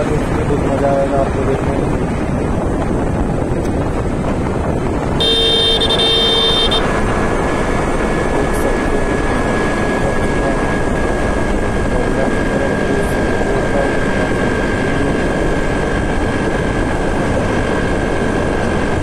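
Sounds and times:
wind and road noise: 0:00.0 - 0:19.0
vehicle horn: 0:05.2 - 0:06.9.

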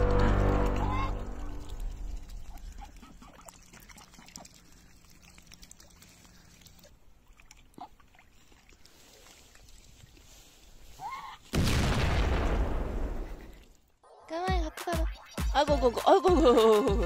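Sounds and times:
waterfowl dabbling and splashing: 0:00.4 - 0:11.5.

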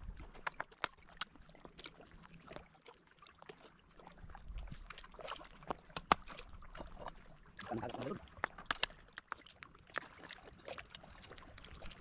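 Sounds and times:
faint clicks and taps of dishes: 0:08.4 - 0:09.7.

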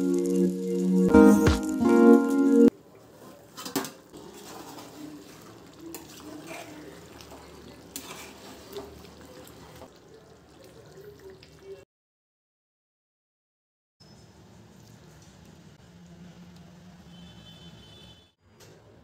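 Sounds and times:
intro music: 0:00.0 - 0:02.7
curry simmering in a pot: 0:02.7 - 0:11.8.

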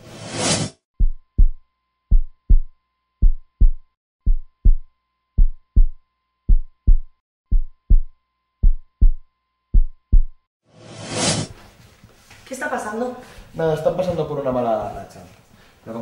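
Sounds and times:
heartbeat double thumps: 0:01.0 - 0:10.4.

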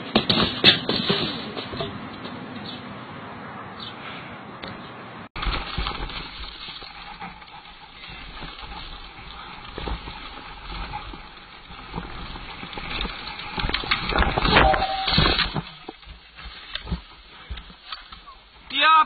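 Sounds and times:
bike rattling over bumps: 0:00.0 - 0:02.5, 0:05.4 - 0:18.9
bike tyres rolling on dirt: 0:05.4 - 0:19.0.

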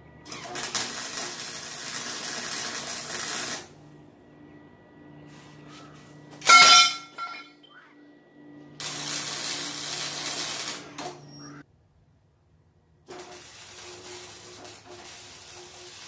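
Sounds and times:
welding arc crackling: 0:00.2 - 0:03.7, 0:08.8 - 0:11.2, 0:13.0 - 0:16.0
metallic clank: 0:06.4 - 0:07.6.

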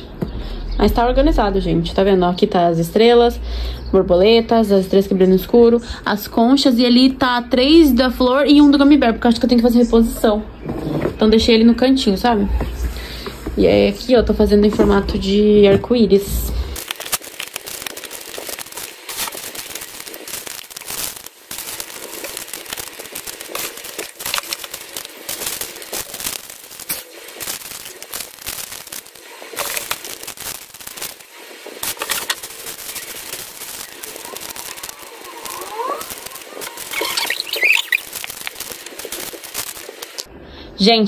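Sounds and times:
plastic bags crinkling: 0:16.8 - 0:40.2.

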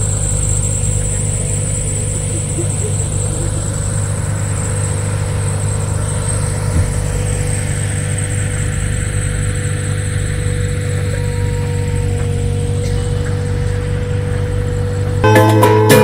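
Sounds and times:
engine running steadily: 0:00.0 - 0:16.0.

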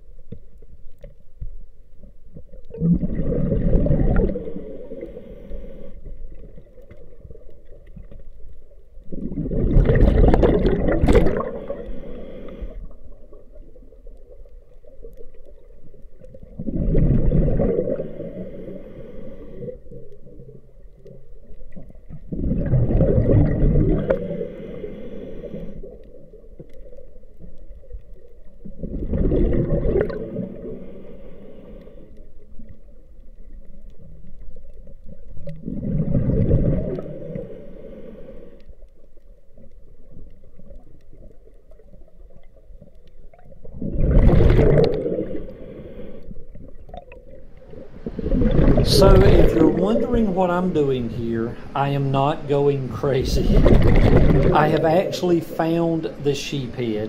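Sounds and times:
bubbling exhaled air: 0:02.7 - 0:07.8, 0:09.0 - 0:14.1, 0:16.2 - 0:27.2, 0:28.5 - 0:32.7, 0:35.4 - 0:38.6, 0:43.3 - 0:56.3
regulator breath hiss: 0:04.4 - 0:06.0, 0:11.4 - 0:12.9, 0:18.0 - 0:19.9, 0:24.1 - 0:26.0, 0:30.6 - 0:32.2, 0:37.1 - 0:38.8, 0:45.3 - 0:46.4.

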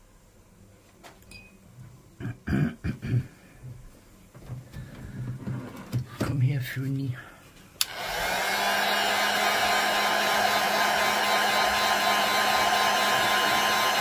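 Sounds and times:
heat gun switch click: 0:07.8 - 0:08.0
heat gun blowing air: 0:07.8 - 0:14.0.

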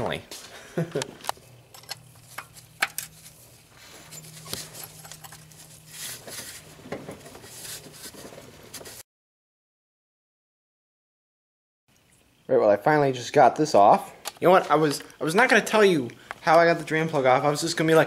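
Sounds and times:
low steady hum: 0:00.0 - 0:09.0
rustling: 0:02.1 - 0:09.0.

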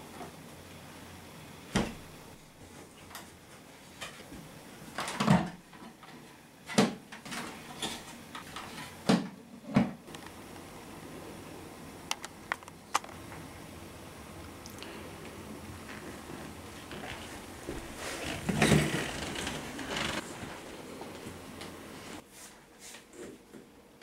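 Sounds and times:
rustling: 0:15.8 - 0:22.6.

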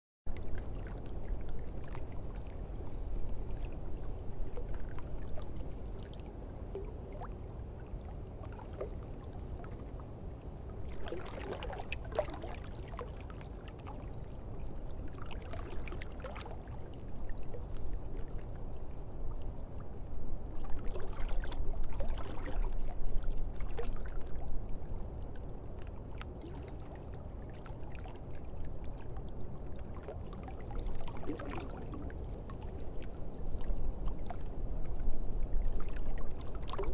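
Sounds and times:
water sloshing and pouring: 0:10.8 - 0:16.8, 0:20.7 - 0:24.4, 0:29.9 - 0:34.5, 0:35.7 - 0:36.9.

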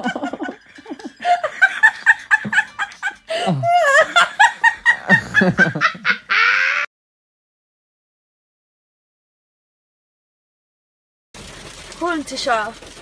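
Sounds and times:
person laughing: 0:00.0 - 0:06.9.

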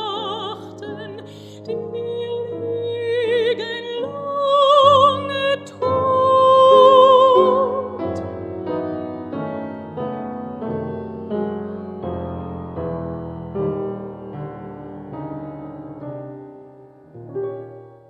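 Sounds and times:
woman singing with vibrato: 0:00.0 - 0:08.2
piano accompaniment: 0:00.0 - 0:18.0.

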